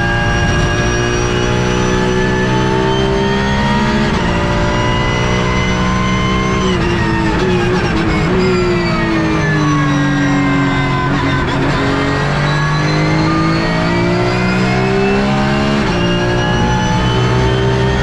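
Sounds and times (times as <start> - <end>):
race car engine revving: 0.0 - 18.0.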